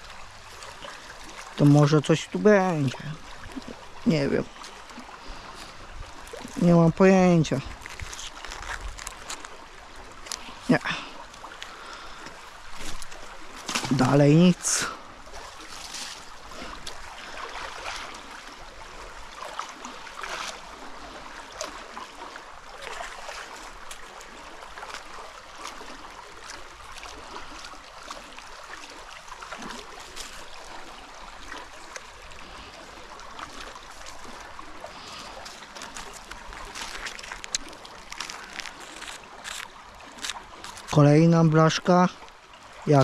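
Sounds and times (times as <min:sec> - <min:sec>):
creek water flowing: 0:00.0 - 0:43.0
rope dragged through wet grass: 0:07.4 - 0:10.8, 0:12.5 - 0:18.4, 0:33.4 - 0:41.0.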